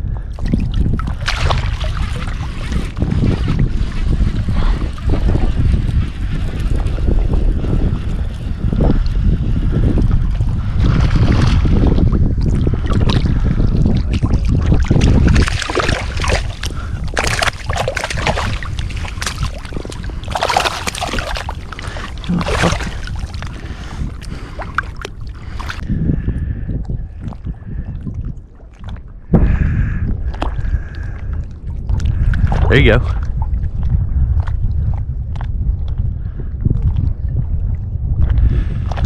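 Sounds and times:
water splashing and sloshing: 0.0 - 39.0
wind buffeting microphone: 0.0 - 39.0.

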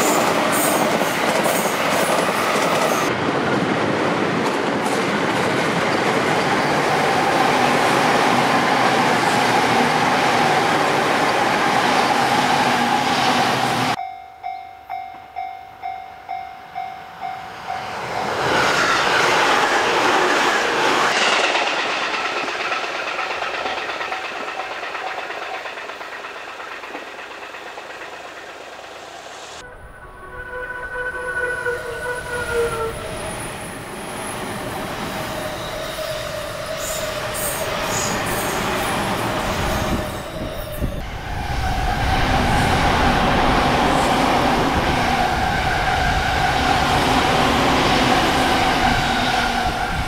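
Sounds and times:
train wheel and rail noise: 0.0 - 50.0
ringing crossing signal: 13.9 - 18.4.

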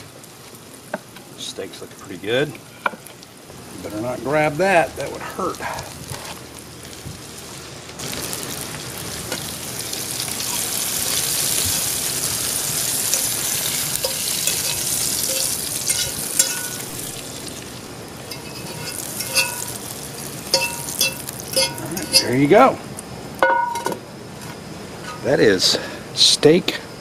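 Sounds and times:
mushrooms sizzling in a skillet: 0.0 - 24.0
fork clinking against pan: 14.0 - 16.9, 18.3 - 19.8, 20.5 - 22.4.

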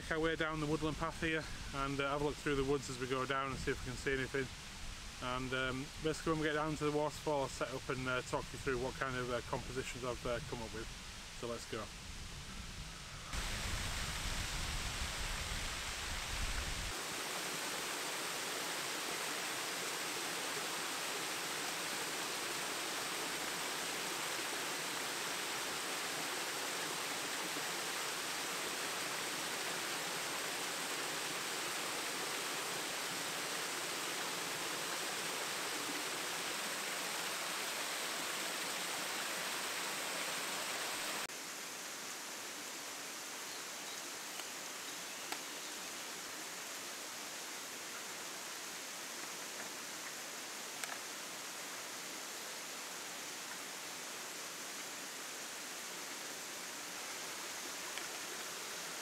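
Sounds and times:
waterfall rushing: 13.3 - 41.9.

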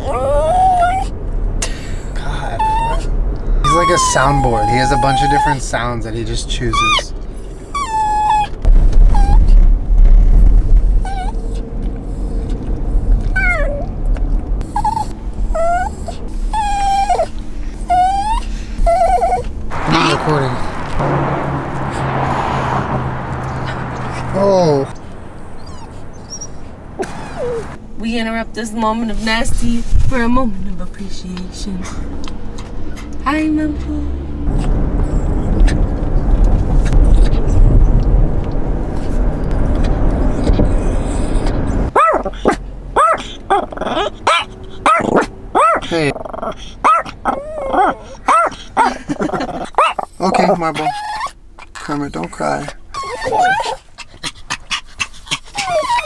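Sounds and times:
dog whining and crying: 0.0 - 1.2, 2.4 - 5.7, 6.6 - 9.6, 10.9 - 13.9, 14.6 - 20.1, 25.4 - 27.8, 39.6 - 49.0, 49.6 - 51.8, 52.6 - 54.0, 55.3 - 56.0
low car rumble: 0.0 - 56.0.

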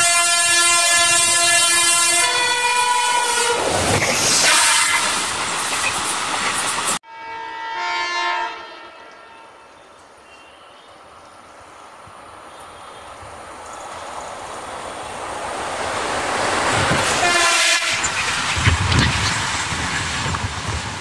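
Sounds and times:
multi-tone locomotive horn: 0.0 - 3.7, 4.4 - 5.2, 7.0 - 10.9, 17.2 - 18.2.

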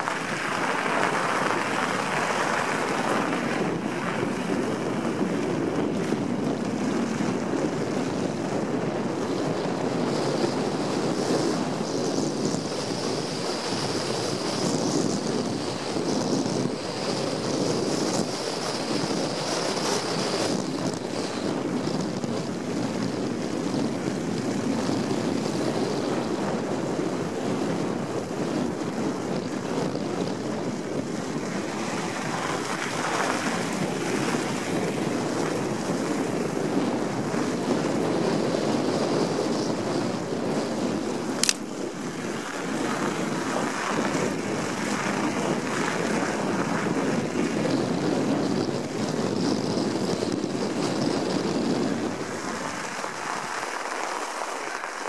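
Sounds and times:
tyres rolling over packed snow: 0.0 - 55.0
wind rushing over microphone: 0.0 - 55.0
sharp click: 41.4 - 41.7.

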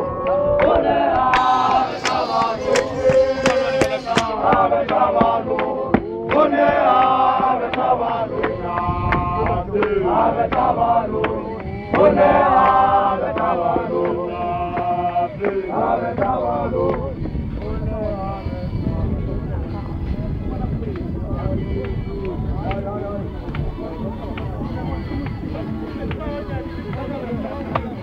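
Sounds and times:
men chanting a hymn: 0.0 - 28.0
sharp beats: 1.2 - 4.7.

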